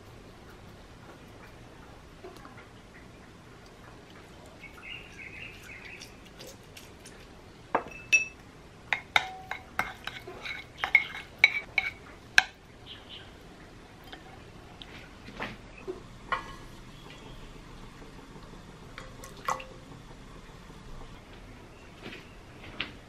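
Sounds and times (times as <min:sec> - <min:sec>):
wooden spoon clinking on bowl: 0:09.0 - 0:12.5.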